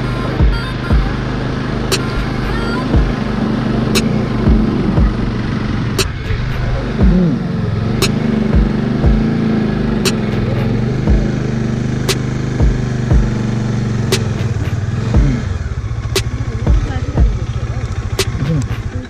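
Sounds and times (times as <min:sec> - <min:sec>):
motorcycle engine running: 0:00.0 - 0:19.0
sharp click: 0:06.0 - 0:06.3, 0:08.0 - 0:08.2, 0:10.0 - 0:10.5, 0:12.1 - 0:12.3.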